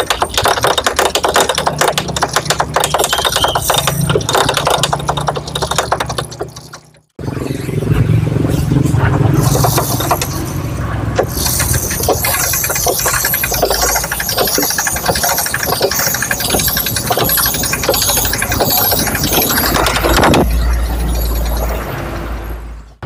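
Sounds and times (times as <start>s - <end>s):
small engine ticking: 11.2s - 21.7s.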